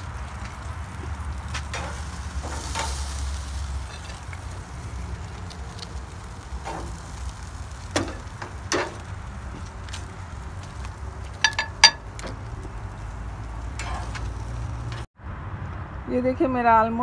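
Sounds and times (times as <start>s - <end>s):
steady low rumble: 0.0s - 15.1s
metal tongs clicking on grill: 13.7s - 15.0s.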